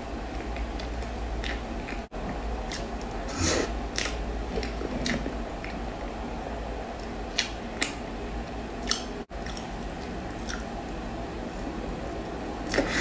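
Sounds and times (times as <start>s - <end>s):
chewing cake: 0.3s - 5.8s, 8.8s - 11.0s
sharp wet clicks: 8.8s - 10.7s.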